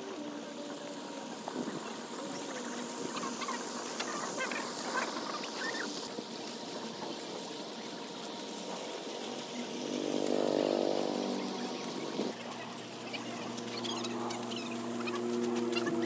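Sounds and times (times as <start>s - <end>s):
low droning sound: 8.7s - 16.0s.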